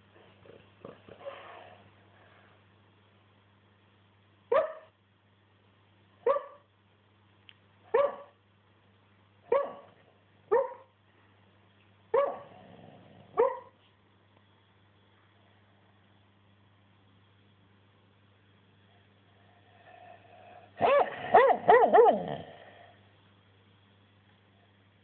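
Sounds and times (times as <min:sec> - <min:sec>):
dog barking in sleep: 0:04.5 - 0:05.0, 0:06.2 - 0:06.7, 0:07.9 - 0:08.4, 0:09.5 - 0:10.9, 0:12.1 - 0:13.8, 0:19.8 - 0:22.9.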